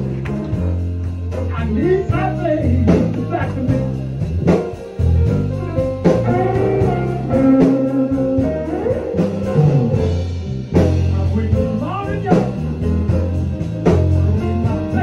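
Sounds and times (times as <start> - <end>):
sustained bass notes: 0.0 - 15.0
plucked guitar: 2.2 - 11.4.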